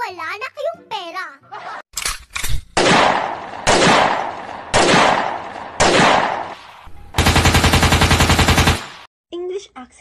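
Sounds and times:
gunshots: 2.7 - 9.1
automatic gunfire burst: 7.2 - 9.1.

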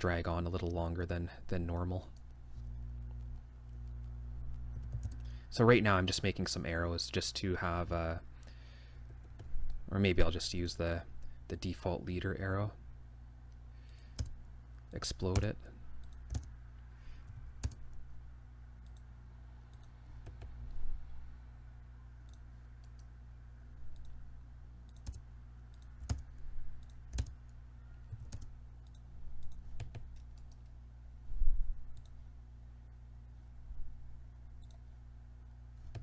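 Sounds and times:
steady low hum: 0.0 - 36.0
computer mouse clicks: 18.8 - 19.1, 19.7 - 20.5, 23.9 - 24.2, 24.9 - 26.2, 28.2 - 30.8, 32.0 - 32.2, 34.6 - 34.8.

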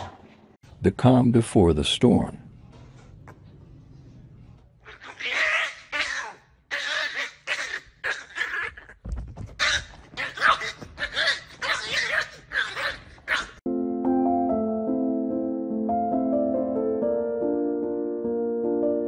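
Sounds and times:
small dog barking excitedly: 4.9 - 8.9, 9.6 - 13.6.

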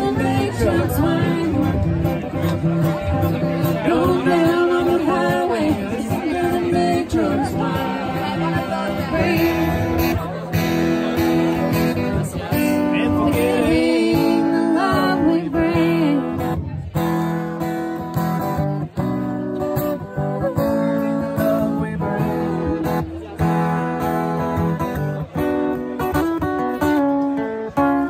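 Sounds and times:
person singing: 0.0 - 2.0, 3.7 - 10.0, 13.0 - 16.4
acoustic guitar strumming: 0.0 - 28.0.

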